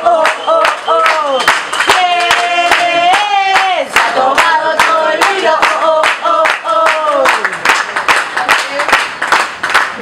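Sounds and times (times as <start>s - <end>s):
voices singing a chant: 0.0s - 7.5s
rhythmic hand-clapping: 0.0s - 10.0s.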